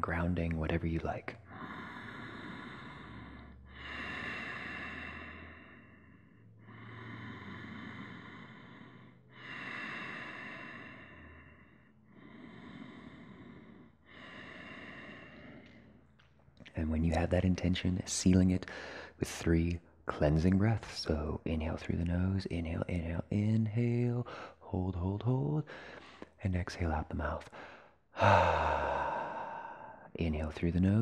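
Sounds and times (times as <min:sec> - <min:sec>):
man breathing through the nose: 0:01.4 - 0:16.0, 0:18.6 - 0:19.2, 0:25.7 - 0:26.4, 0:27.4 - 0:30.2.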